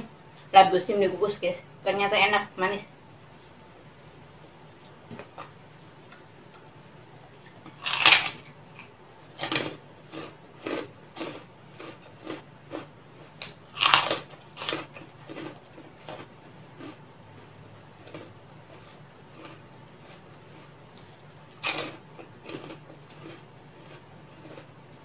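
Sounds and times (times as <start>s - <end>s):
small crunches of chewing: 7.3s - 25.0s
loud crunches biting crackers: 7.7s - 17.0s, 18.0s - 24.8s.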